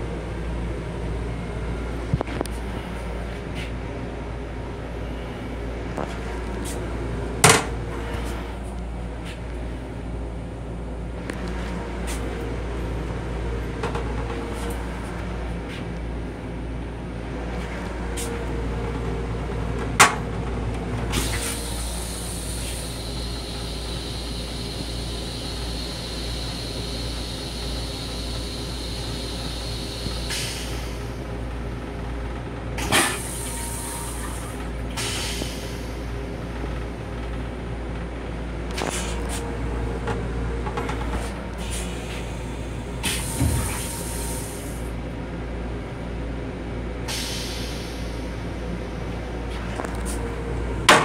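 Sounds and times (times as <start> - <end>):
train car low rumble: 0.0 - 51.0
toilet flush hissing: 21.1 - 31.2, 41.2 - 44.9.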